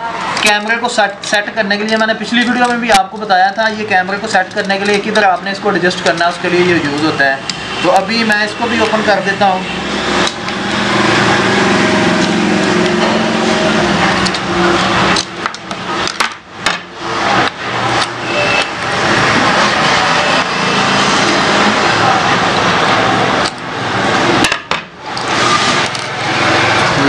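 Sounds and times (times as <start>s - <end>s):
hand tools clicking and knocking: 0.2s - 9.1s, 12.2s - 19.0s, 22.5s - 26.2s.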